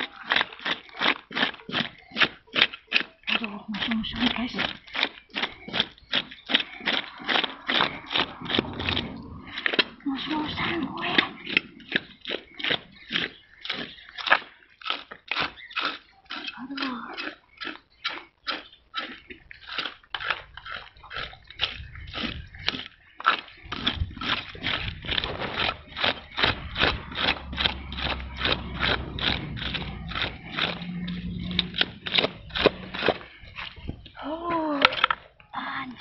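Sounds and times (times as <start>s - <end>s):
low steady hum: 3.4s - 13.5s, 23.7s - 34.6s
blade scraping fish scales: 3.8s - 14.5s.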